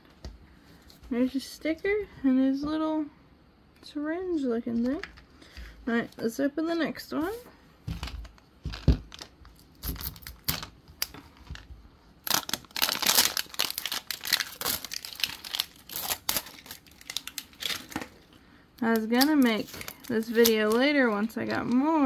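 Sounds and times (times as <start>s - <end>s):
plastic wrap crinkling and tearing: 8.0s - 22.0s.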